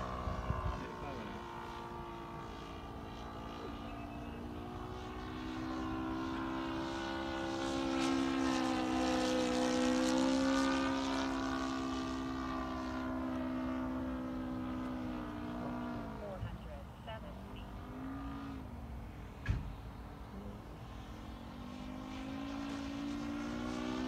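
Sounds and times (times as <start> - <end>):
model plane engine buzzing: 0.0 - 14.9.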